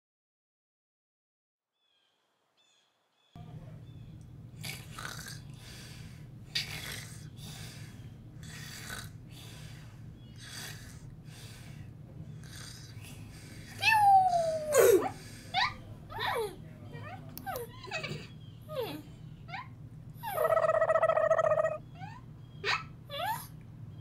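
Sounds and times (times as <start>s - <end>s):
steady low hum: 3.4s - 24.0s
person snoring: 8.4s - 9.2s.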